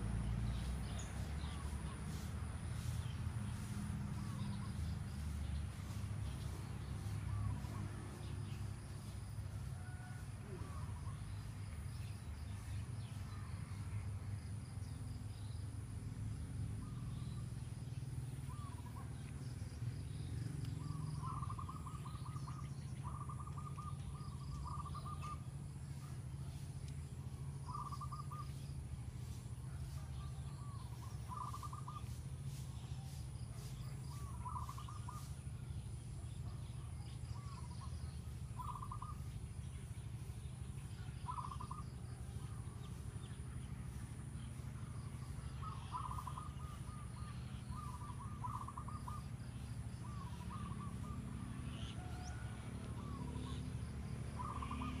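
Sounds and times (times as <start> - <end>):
bird calling: 18.4 - 19.3, 20.7 - 26.6, 27.6 - 28.7, 30.6 - 32.6, 33.9 - 35.4, 37.3 - 39.3, 41.0 - 42.0, 45.4 - 53.7, 54.4 - 55.0.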